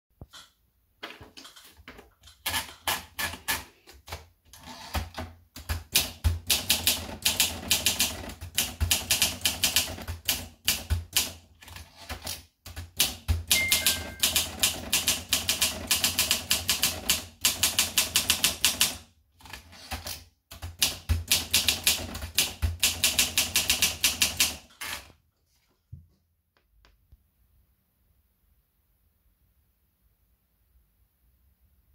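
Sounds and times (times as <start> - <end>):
manual typewriter typing: 1.4 - 25.1.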